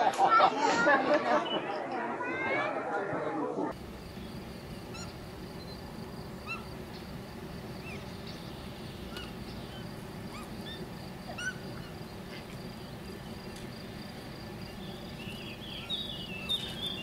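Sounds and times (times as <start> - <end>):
outdoor background noise: 0.0 - 17.0
bonobos high-pitched calls: 4.8 - 5.7, 6.3 - 6.8, 8.9 - 12.6.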